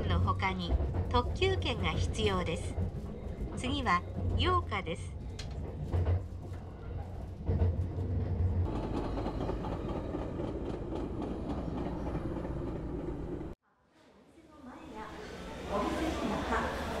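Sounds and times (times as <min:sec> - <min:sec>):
train rumbling on rails: 0:00.0 - 0:13.6.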